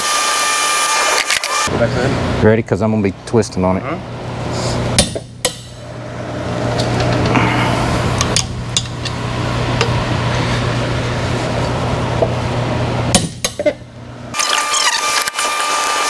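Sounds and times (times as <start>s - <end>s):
steady hum: 1.7s - 14.4s.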